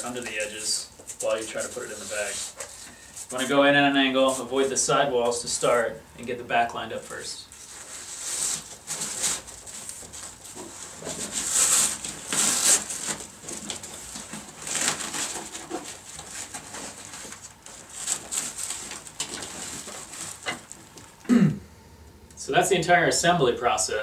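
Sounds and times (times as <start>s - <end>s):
fabric and panel rustling: 0.0s - 21.2s
velcro edges rubbing: 7.5s - 21.2s.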